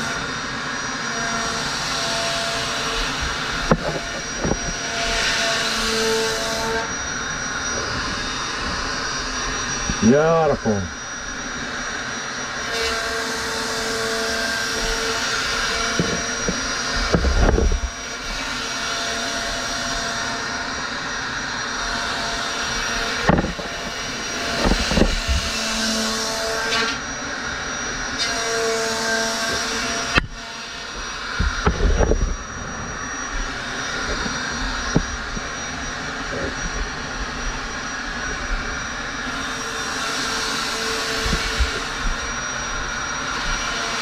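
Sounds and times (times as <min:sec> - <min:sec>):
router cutting foam: 0:00.0 - 0:44.0.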